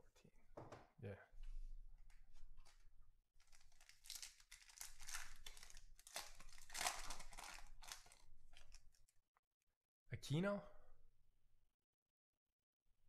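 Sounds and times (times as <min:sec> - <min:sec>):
foil wrapper tearing and crinkling: 0:03.4 - 0:08.9.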